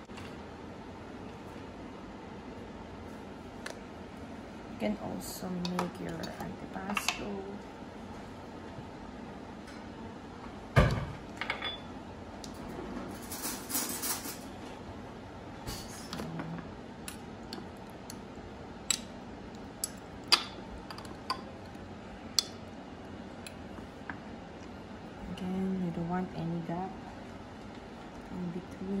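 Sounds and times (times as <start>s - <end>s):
dishes clinking: 10.8s - 11.9s.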